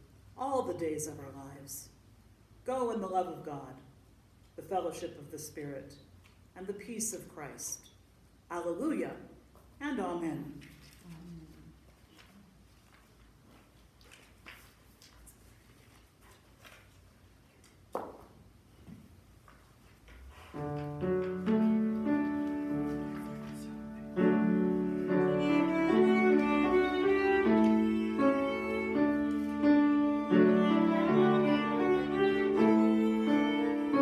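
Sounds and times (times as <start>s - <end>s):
piano accompaniment: 20.5s - 34.0s
violin playing slow melody: 21.5s - 34.0s.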